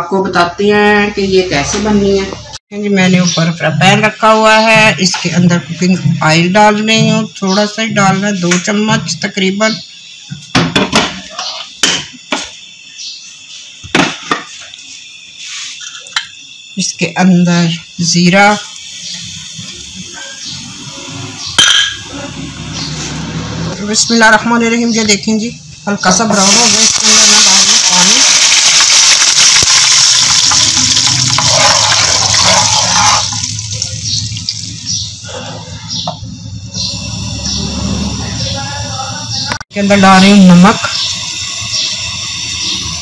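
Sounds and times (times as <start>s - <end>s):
water hissing in hot oil: 12.2s - 23.4s, 25.5s - 35.2s, 36.6s - 39.2s, 39.8s - 43.0s
kitchen utensils clattering: 21.6s - 22.4s.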